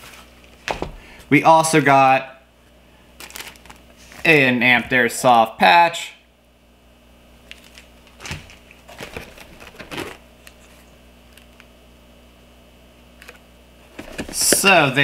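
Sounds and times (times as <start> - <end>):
low steady hum: 0.0 - 15.0
plastic packaging rustling: 3.2 - 4.2, 7.4 - 11.6.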